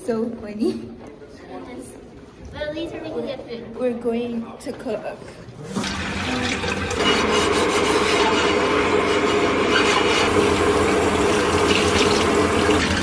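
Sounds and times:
faucet running: 5.7s - 13.0s.

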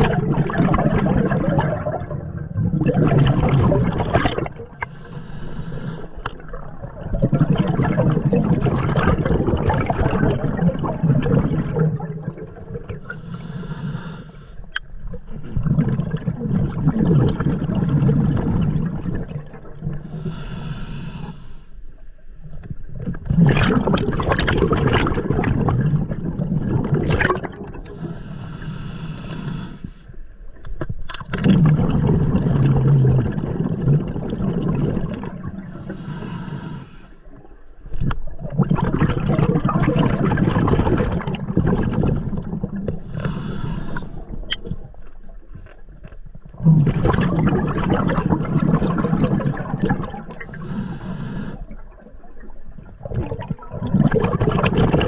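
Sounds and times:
bubbling exhalations: 0.0s - 14.0s, 15.2s - 21.3s, 22.9s - 29.8s, 31.1s - 37.0s, 38.0s - 45.0s, 46.5s - 55.0s
hissing regulator inhalations: 4.8s - 6.3s, 13.0s - 14.7s, 20.1s - 21.8s, 27.9s - 30.1s, 35.6s - 37.2s, 43.0s - 44.3s, 50.5s - 51.8s.

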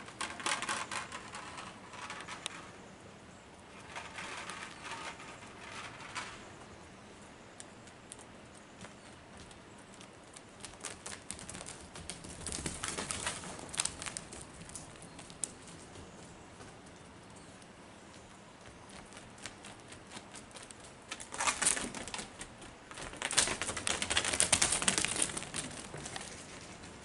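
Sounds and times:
deer rustling and crunching: 0.0s - 27.0s.

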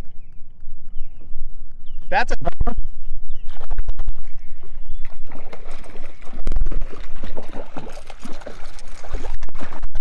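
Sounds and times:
water sloshing and trickling: 4.2s - 10.0s.

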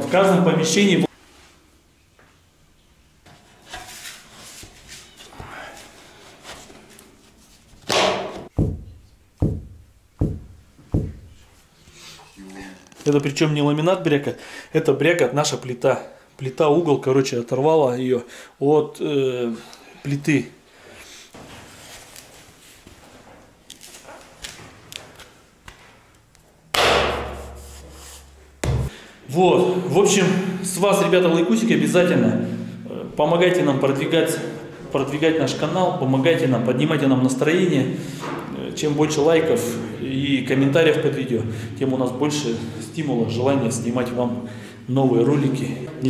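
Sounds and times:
fist thumping on plank: 7.9s - 11.4s, 26.8s - 27.4s, 28.6s - 28.9s
laminate floor clunking underfoot: 7.9s - 11.5s, 28.6s - 28.9s.

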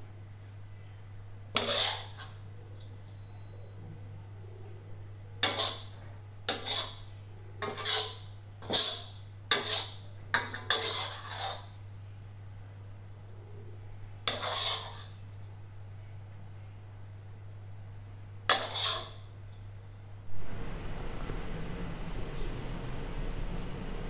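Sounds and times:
metal spatula scraping wok: 1.6s - 2.4s, 5.4s - 11.8s, 14.3s - 15.2s, 18.5s - 19.3s.

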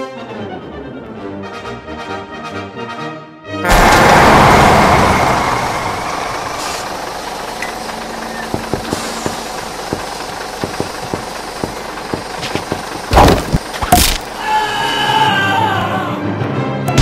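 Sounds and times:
loud rush of noise: 3.6s - 8.1s
truck engine rumble: 3.6s - 14.4s.

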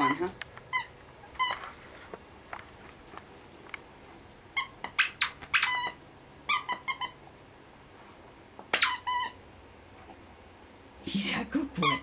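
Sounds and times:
squeaky toy squeaking: 0.0s - 1.6s, 4.6s - 7.2s, 8.7s - 9.4s, 11.8s - 12.0s.

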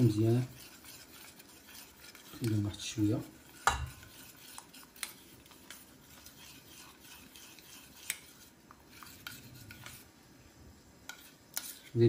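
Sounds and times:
spoon scraping saucepan: 0.0s - 10.2s, 11.0s - 12.0s.

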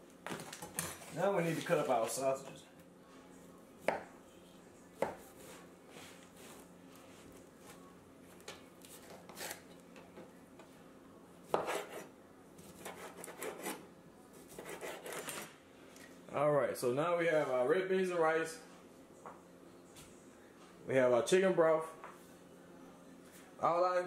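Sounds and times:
knife slicing sausage: 8.9s - 9.6s, 11.5s - 13.8s.

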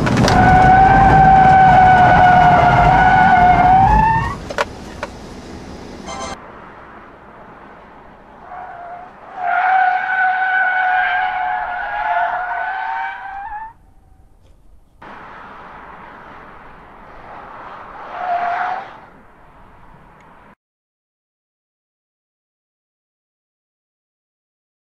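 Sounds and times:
tyres squealing on asphalt: 0.0s - 6.9s, 7.5s - 14.4s, 15.0s - 20.5s
car running and road noise: 0.0s - 20.6s.

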